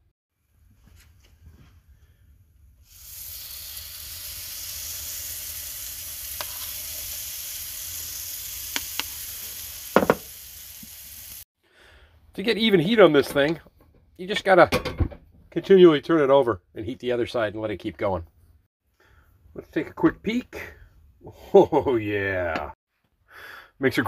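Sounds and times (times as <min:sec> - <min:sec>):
batter sizzling in waffle iron: 0:02.8 - 0:11.5.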